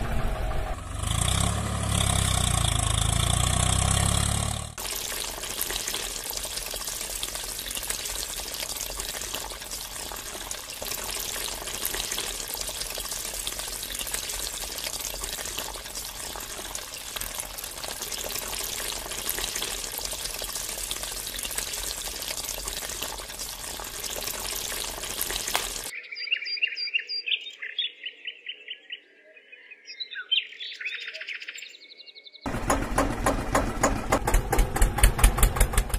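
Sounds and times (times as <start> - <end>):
engine-like chugging: 0.0 - 4.8, 32.5 - 35.9
water pump spraying: 0.9 - 25.9, 32.5 - 35.9
birds chirping: 24.2 - 32.5.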